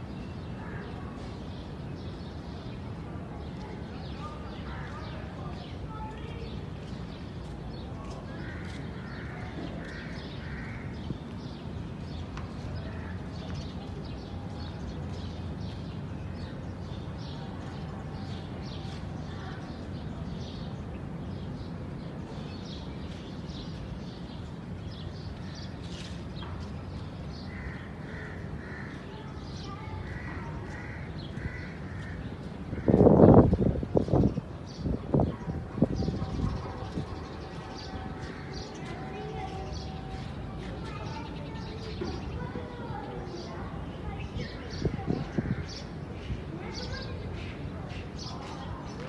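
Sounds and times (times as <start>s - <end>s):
small birds chirping: 0.0s - 49.0s
crows cawing: 8.4s - 11.0s, 27.5s - 29.1s, 30.1s - 33.0s.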